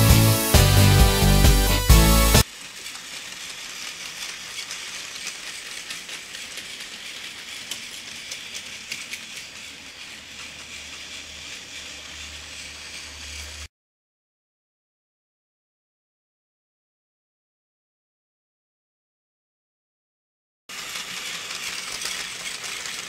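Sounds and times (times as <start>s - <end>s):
toy train motor whirring: 0.0s - 13.7s, 20.7s - 23.0s
wheels clicking over track: 0.0s - 13.7s, 20.7s - 23.0s.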